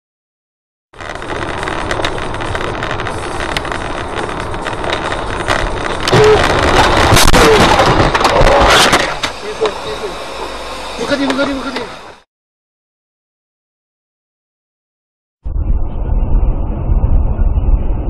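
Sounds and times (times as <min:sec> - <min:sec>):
car road and engine noise: 0:01.0 - 0:12.3.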